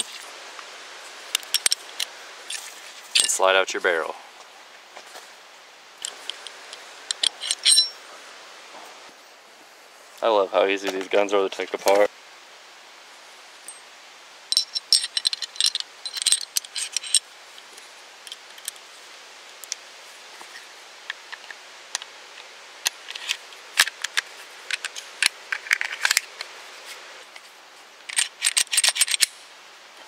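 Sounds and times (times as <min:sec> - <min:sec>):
pistol parts clicking: 0:06.0 - 0:08.0, 0:28.1 - 0:29.4.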